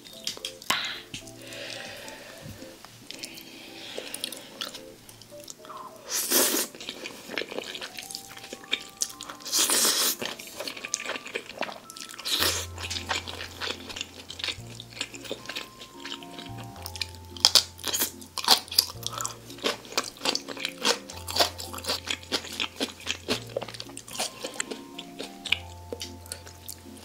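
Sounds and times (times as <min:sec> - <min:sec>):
wet chewing and crunching: 0:00.0 - 0:02.2, 0:03.0 - 0:27.0
slurping noodles: 0:05.7 - 0:08.0, 0:08.6 - 0:16.6.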